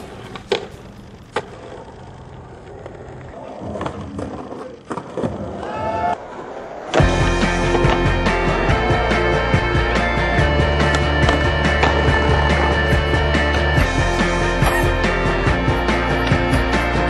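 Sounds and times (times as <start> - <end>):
skateboard popping and landing clacks: 0.0 - 1.9
skateboard wheels rolling on concrete: 0.0 - 17.0
loud background music: 7.0 - 17.0.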